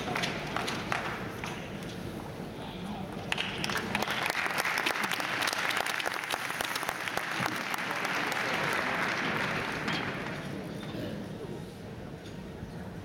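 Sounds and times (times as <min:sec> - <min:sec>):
crowd applauding: 0:00.0 - 0:01.6, 0:03.2 - 0:10.6.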